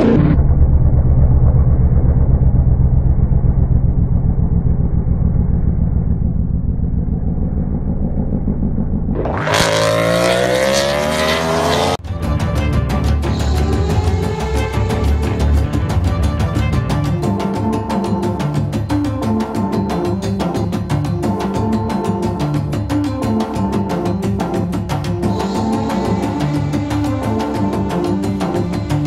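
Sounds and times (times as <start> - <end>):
motorcycle engine revving: 0.0 - 12.0
muffled racing motorcycle engines: 0.0 - 12.0
background music with steady beat: 11.5 - 29.0.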